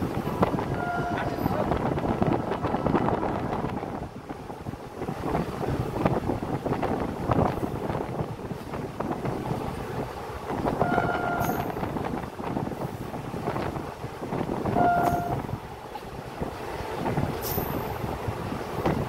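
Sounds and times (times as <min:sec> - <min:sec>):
moving train running noise: 0:00.0 - 0:19.0
wind on microphone: 0:00.0 - 0:19.0
train horn toots: 0:00.7 - 0:01.6, 0:10.8 - 0:11.7, 0:14.7 - 0:15.4.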